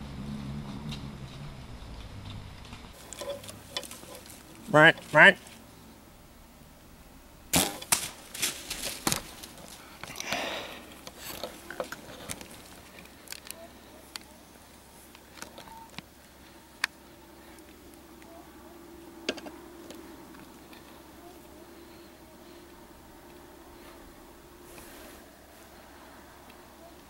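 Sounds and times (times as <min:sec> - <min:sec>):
rustling: 0:00.4 - 0:06.0, 0:07.5 - 0:18.6, 0:19.3 - 0:27.0
bow firing crack: 0:07.5 - 0:09.4.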